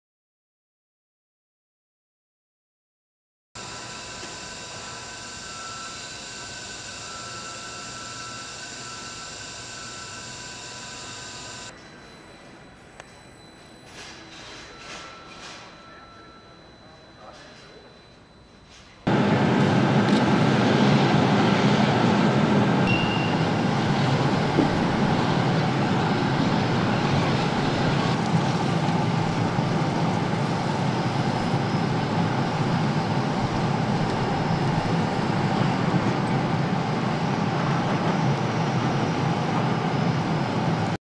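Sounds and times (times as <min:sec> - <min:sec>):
loud steady engine noise: 0:03.6 - 0:11.7, 0:19.1 - 0:41.0
faint high whistle: 0:04.4 - 0:10.7, 0:22.8 - 0:23.8.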